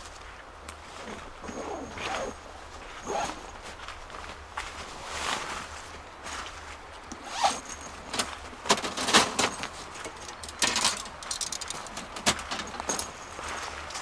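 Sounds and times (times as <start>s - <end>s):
zipper pulled in short strokes: 1.0s - 3.6s.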